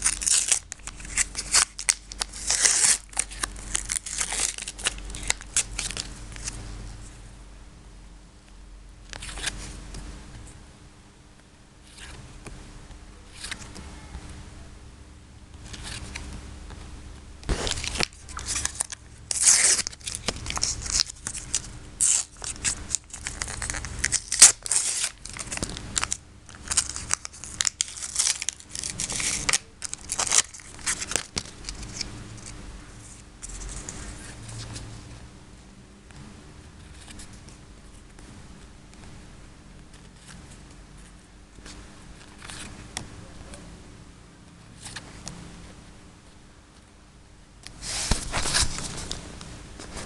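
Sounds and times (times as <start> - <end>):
paper packet ripping: 0.0 - 6.6, 15.7 - 16.2, 17.5 - 32.6, 47.8 - 49.2
stickers rustling: 17.5 - 34.8.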